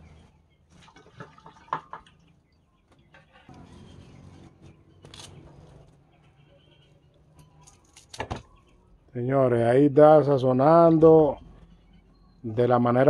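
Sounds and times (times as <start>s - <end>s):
brief rustle: 5.0s - 6.0s.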